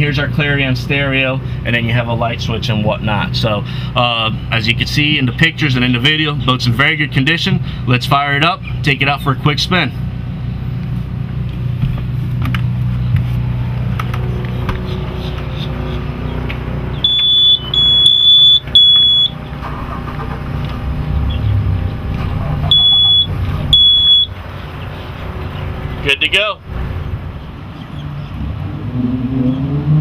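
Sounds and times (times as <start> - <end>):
boat machinery humming: 0.0 - 28.8
high electronic beeps: 17.0 - 19.4, 22.6 - 24.4.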